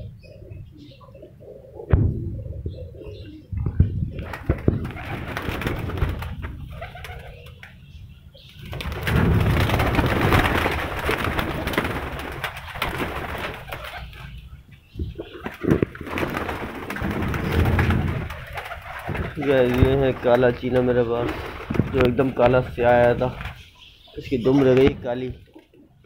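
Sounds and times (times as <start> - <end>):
pigeons cooing: 0.0 - 26.0
wings flapping: 3.6 - 7.8, 8.5 - 14.4, 15.0 - 23.7.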